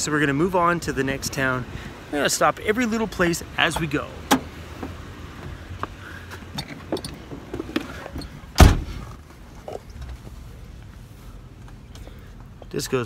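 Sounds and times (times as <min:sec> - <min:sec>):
van low rumble: 0:00.0 - 0:13.0
loud short thump: 0:08.6 - 0:09.0.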